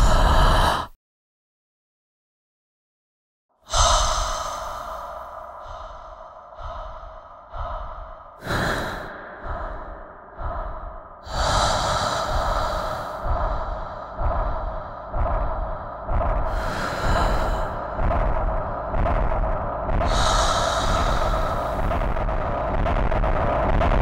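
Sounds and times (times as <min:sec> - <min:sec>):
loud human breathing: 0:00.0 - 0:01.0, 0:03.6 - 0:24.0.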